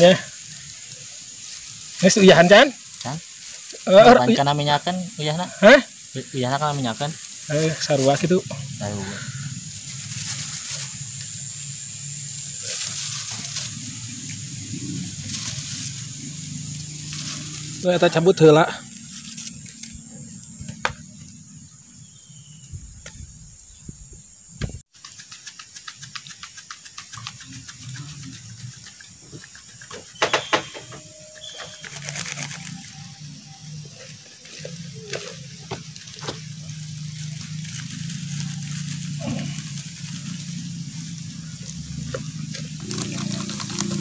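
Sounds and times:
wood fire crackling: 0:00.0 - 0:04.9, 0:05.5 - 0:11.4, 0:33.9 - 0:44.0.

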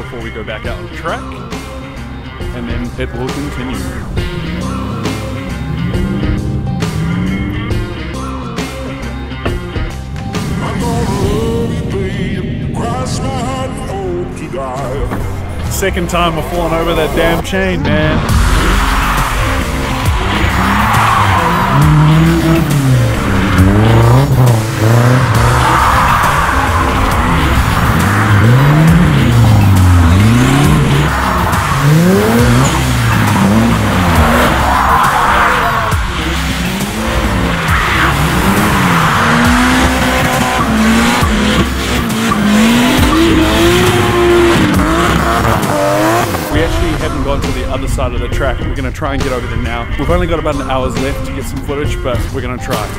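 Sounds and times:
car engine revving: 0:00.0 - 0:52.9
music: 0:00.0 - 0:52.9
tyres squealing: 0:18.6 - 0:46.6.

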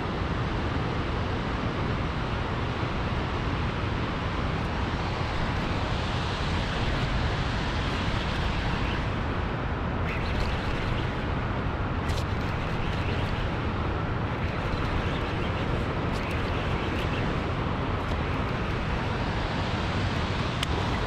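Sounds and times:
churning water rushing: 0:04.8 - 0:21.0.

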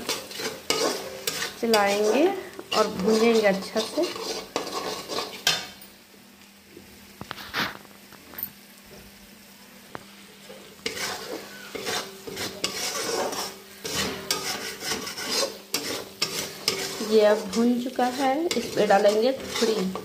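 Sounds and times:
metal spatula scraping and stirring: 0:00.0 - 0:05.8, 0:10.5 - 0:20.0
onions sizzling in oil: 0:00.0 - 0:20.0.

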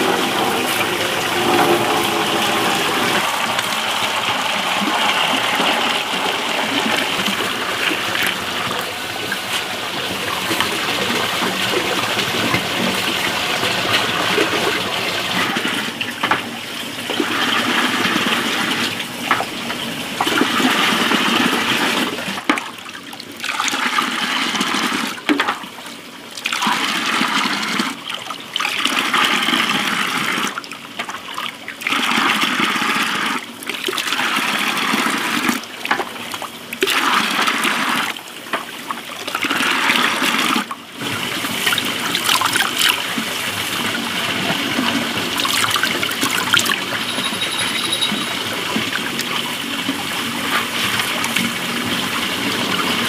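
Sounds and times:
water splashing into metal basin: 0:45.0 - 0:49.6.

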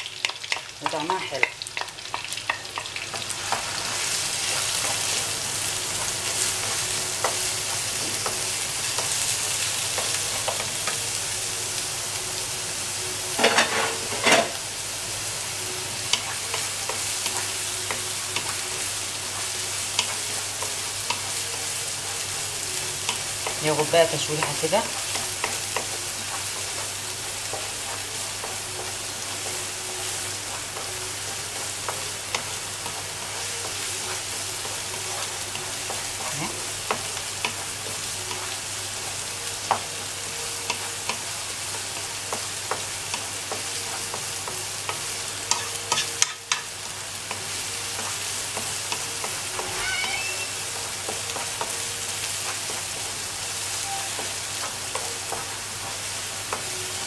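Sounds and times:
onion sizzling in a pan: 0:00.0 - 0:57.0.

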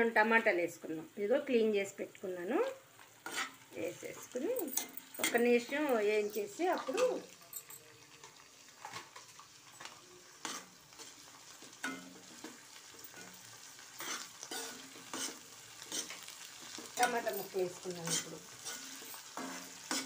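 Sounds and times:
onions sizzling in oil: 0:00.0 - 0:20.0
spatula scraping a pan: 0:03.0 - 0:05.7, 0:08.8 - 0:20.0.

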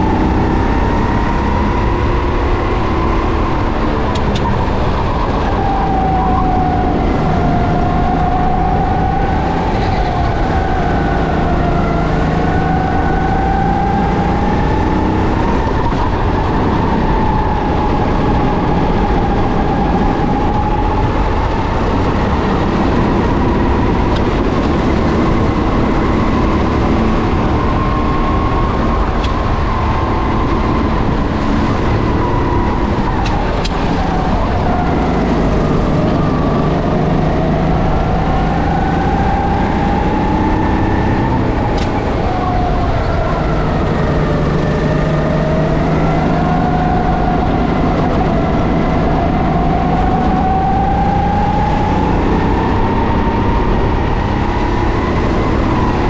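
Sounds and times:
kart engine running: 0:00.0 - 0:56.0.

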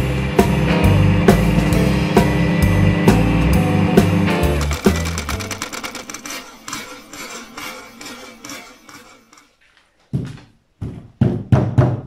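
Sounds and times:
background music: 0:00.0 - 0:06.2
knocks on wood: 0:10.2 - 0:12.0.

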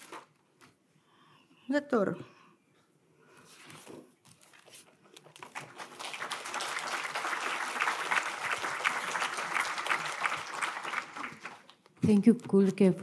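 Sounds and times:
audience applauding: 0:05.4 - 0:11.8.

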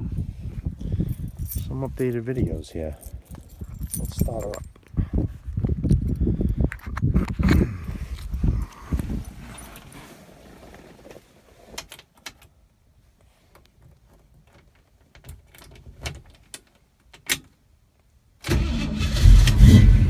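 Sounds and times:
car engine starting and running: 0:18.4 - 0:20.0.

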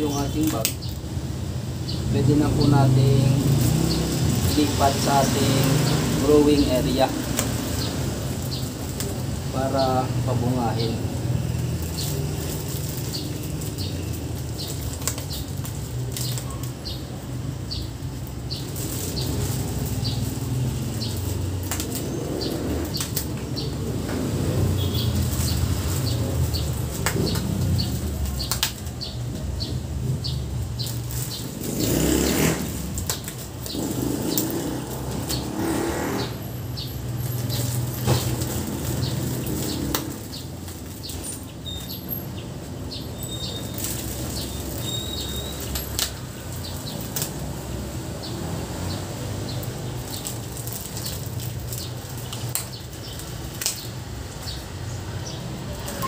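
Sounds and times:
plastic bags crinkling: 0:02.0 - 0:54.8.

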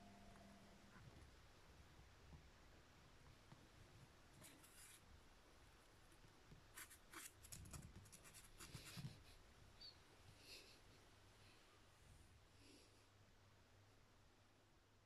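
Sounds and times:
kitten claws scratching cardboard: 0:06.7 - 0:09.2.

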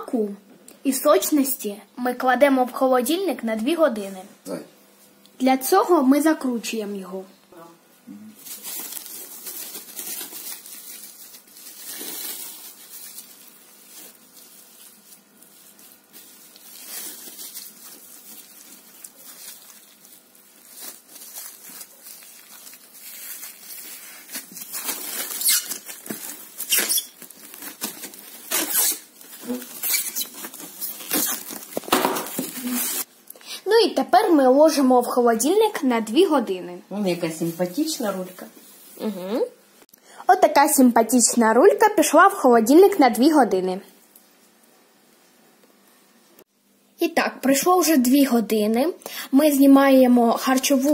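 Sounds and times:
cling film crinkling: 0:08.4 - 0:33.1.

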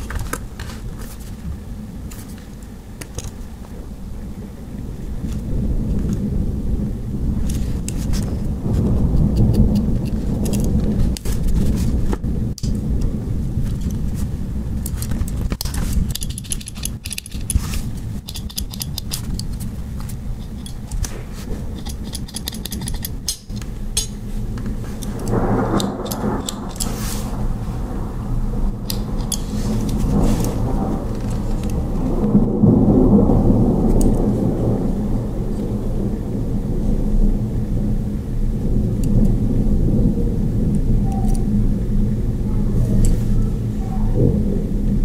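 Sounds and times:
steady low rumble: 0:00.0 - 0:45.0
pocket knife tools clicking: 0:14.8 - 0:19.7, 0:20.4 - 0:21.1, 0:21.7 - 0:24.2, 0:25.0 - 0:26.9.

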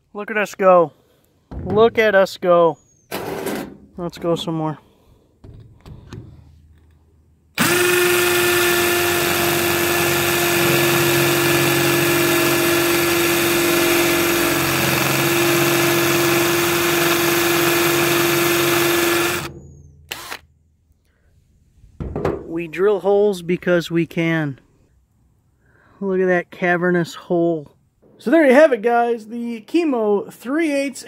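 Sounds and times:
drill grinding into stone: 0:07.6 - 0:20.4.

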